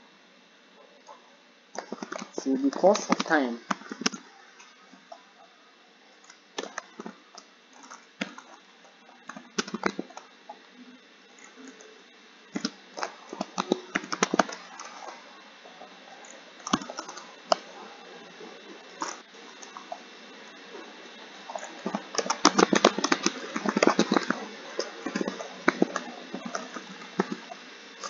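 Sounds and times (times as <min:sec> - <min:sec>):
computer keyboard typing: 0:12.6 - 0:15.2, 0:21.5 - 0:27.6.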